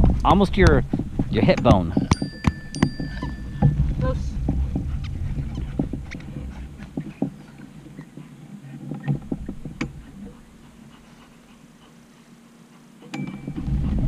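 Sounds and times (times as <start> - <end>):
low rumble: 0.0 - 8.0, 13.5 - 14.0.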